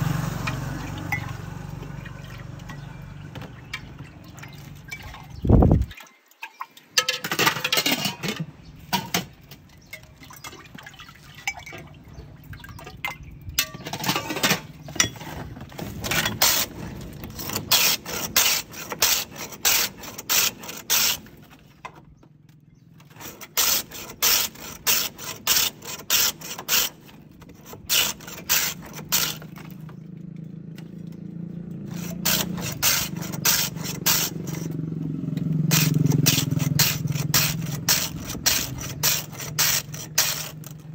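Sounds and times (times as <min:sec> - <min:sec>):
ice scraping on shaver blade: 0:14.0 - 0:21.4, 0:23.1 - 0:29.8, 0:31.8 - 0:34.8, 0:35.7 - 0:40.9.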